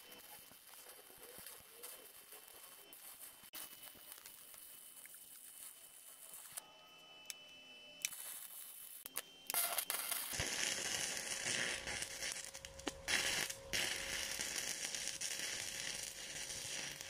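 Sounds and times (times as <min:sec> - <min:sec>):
welding arc crackling hiss: 0:00.0 - 0:06.6, 0:08.0 - 0:17.0
welding arc pops: 0:08.0 - 0:17.0.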